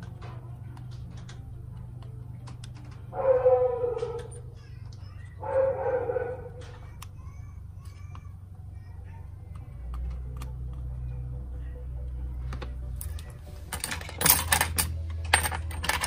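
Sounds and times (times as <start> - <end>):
steady low hum: 0.0 - 16.0
pet animal calling: 3.2 - 4.5, 5.3 - 6.7.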